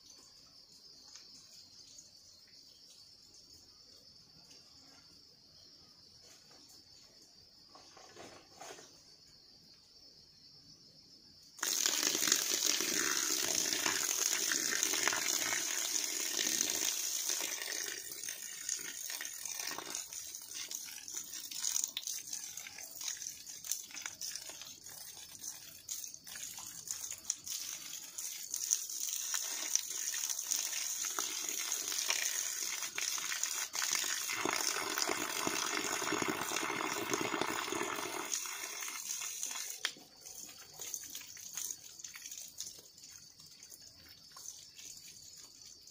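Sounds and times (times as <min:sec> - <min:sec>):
hose water splashing on soil: 0:11.6 - 0:45.9.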